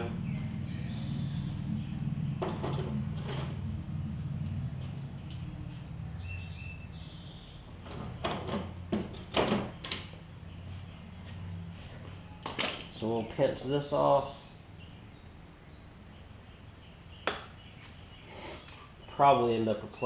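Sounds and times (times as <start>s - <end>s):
steady low hum: 0.0s - 9.2s
knocks and clatter of handling: 2.4s - 3.6s, 7.8s - 10.1s, 12.4s - 13.4s.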